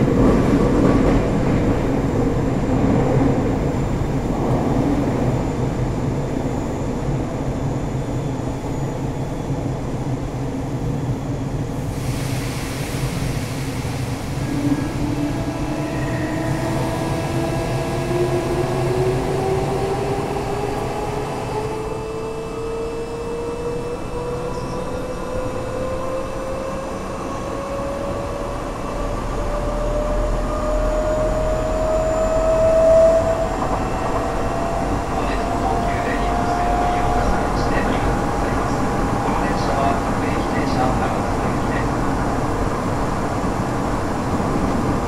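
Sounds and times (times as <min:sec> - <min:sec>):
train running noise: 0:00.0 - 0:45.0
train motor whine: 0:11.8 - 0:40.0.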